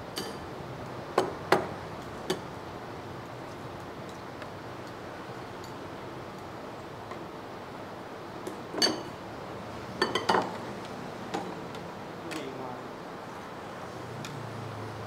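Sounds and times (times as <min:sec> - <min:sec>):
metal spoons clinking on ceramic bowls: 0:10.0 - 0:10.5.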